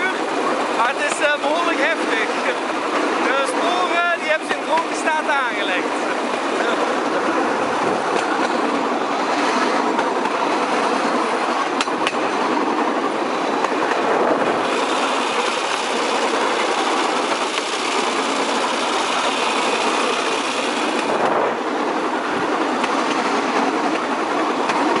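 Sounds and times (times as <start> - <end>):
wheels rattling over track: 0.0 - 25.0
small engine clattering: 14.6 - 21.2.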